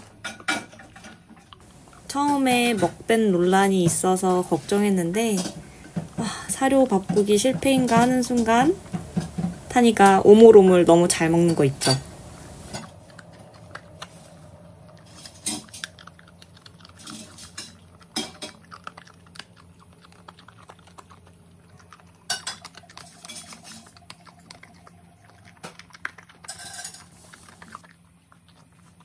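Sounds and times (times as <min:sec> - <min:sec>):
dog crunching kibble: 0:01.6 - 0:29.0
kibble knocking against wooden bowl: 0:05.4 - 0:10.1.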